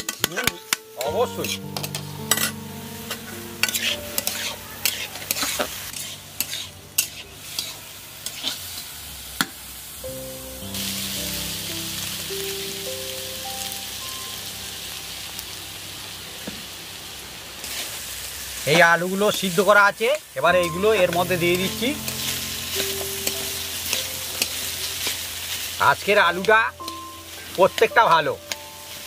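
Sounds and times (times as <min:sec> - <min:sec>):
vegetables frying in oil: 0:00.9 - 0:29.0
spatula scraping a pan: 0:03.6 - 0:08.6.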